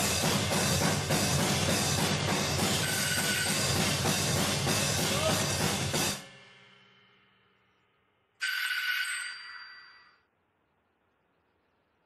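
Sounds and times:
drum kit played hard: 0.0s - 6.7s
cymbals ringing: 0.0s - 7.7s
bright ringing tone: 2.8s - 3.8s, 8.4s - 10.4s.

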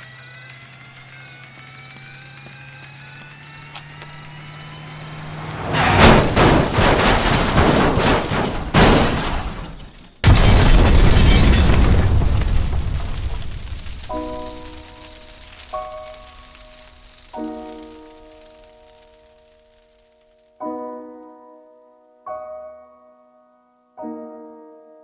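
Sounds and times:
loud noisy rumble: 0.0s - 8.9s
sharp bang: 5.4s - 17.0s
heavy boom: 5.6s - 9.6s, 10.2s - 17.1s.

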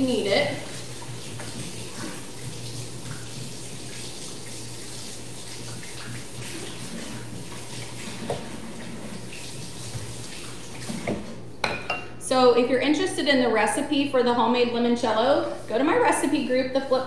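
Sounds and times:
faucet running: 0.0s - 11.4s.

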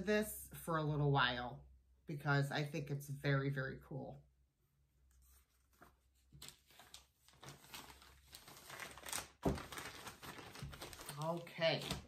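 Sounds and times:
plastic bag crinkling: 6.8s - 12.0s.

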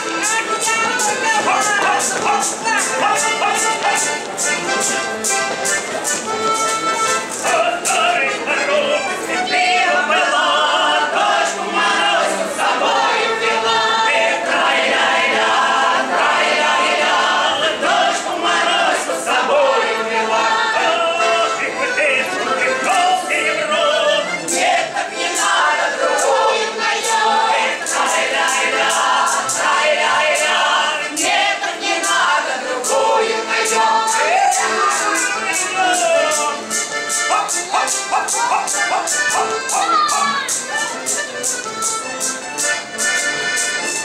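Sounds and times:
choir singing unaccompanied: 0.0s - 4.4s, 7.4s - 40.6s
sharp rhythmic clicks: 24.5s - 43.8s.

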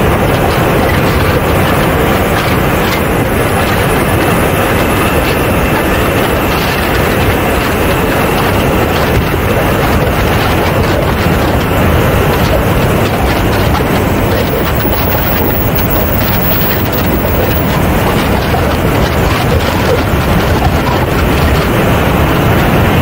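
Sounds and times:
model jet engine and airflow rush: 0.0s - 23.0s
faint high whine: 14.1s - 18.2s.

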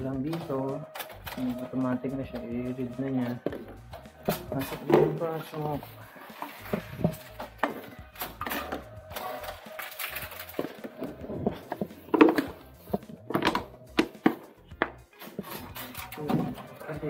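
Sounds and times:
plastic bottles crinkling: 0.0s - 17.0s
knocks and clicks: 6.4s - 16.8s.

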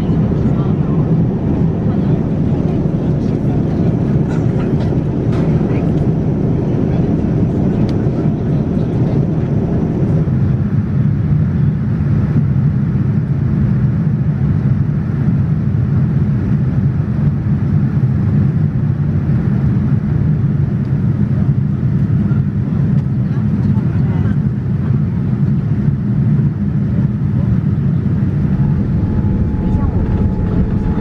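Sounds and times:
low cabin hum: 0.0s - 11.0s, 27.4s - 31.0s
airliner cabin engine rush: 0.0s - 31.0s.

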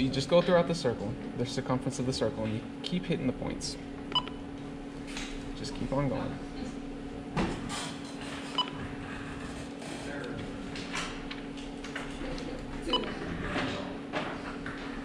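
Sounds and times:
short key beeps: 4.1s - 4.4s.

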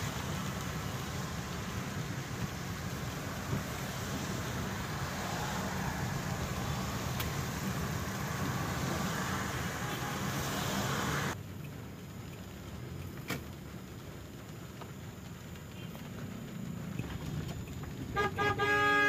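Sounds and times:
low engine and road hum: 0.0s - 19.0s
rain hiss on wet road: 0.0s - 19.0s.

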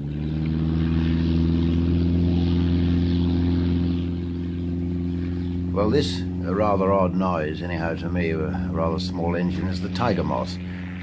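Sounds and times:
biplane engine and propeller: 0.0s - 11.0s.

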